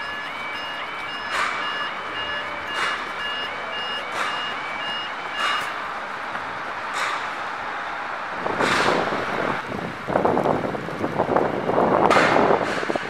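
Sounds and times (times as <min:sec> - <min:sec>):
level crossing alarm beeping: 0:00.0 - 0:07.0
wind buffeting microphone: 0:08.3 - 0:13.0.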